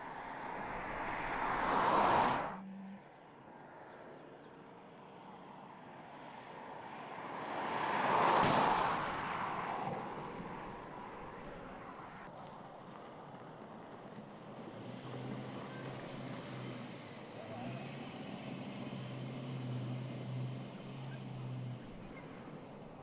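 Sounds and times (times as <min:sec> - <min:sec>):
car driving past: 0:00.0 - 0:03.2.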